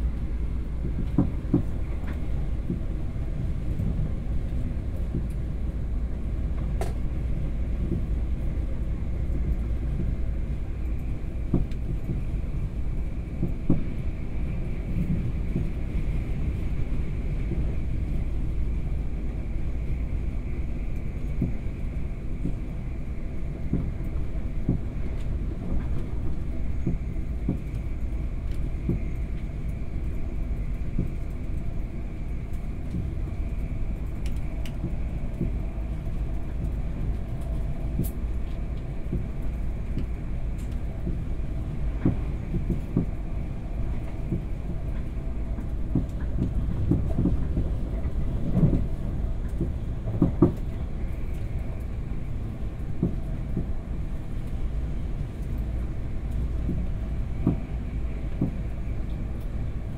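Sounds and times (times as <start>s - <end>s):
train rumbling: 0.0s - 59.9s
knocks from train running gear: 0.8s - 2.8s, 5.1s - 5.3s, 6.6s - 7.0s, 11.5s - 12.2s, 13.4s - 13.9s, 21.4s - 21.6s, 23.7s - 23.9s, 24.6s - 26.1s, 26.8s - 27.8s, 28.8s - 29.2s, 41.9s - 43.2s, 44.1s - 50.7s, 53.0s - 53.7s, 56.7s - 57.7s, 58.3s - 58.6s.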